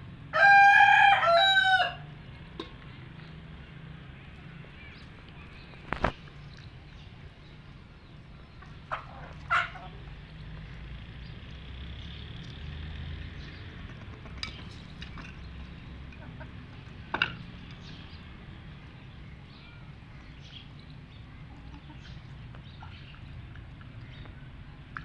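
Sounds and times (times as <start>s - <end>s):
chickens clucking: 8.4s - 10.2s, 13.6s - 18.0s, 21.2s - 24.4s.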